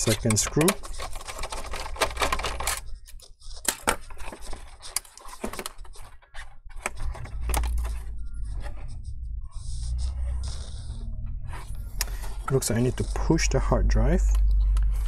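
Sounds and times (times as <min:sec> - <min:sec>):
metal clicks and rattles: 0:00.0 - 0:02.8.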